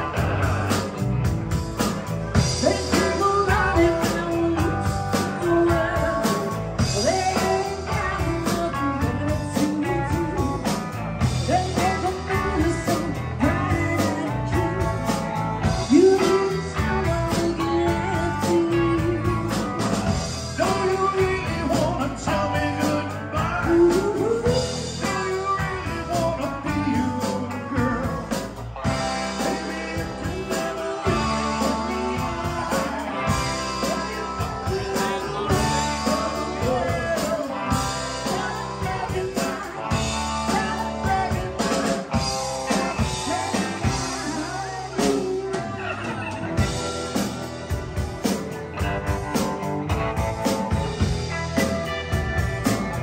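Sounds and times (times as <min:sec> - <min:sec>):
drums: 0:00.0 - 0:53.0
electric guitars: 0:00.0 - 0:53.0
woman singing: 0:02.6 - 0:10.8, 0:11.4 - 0:15.2, 0:15.8 - 0:19.7, 0:29.2 - 0:42.3.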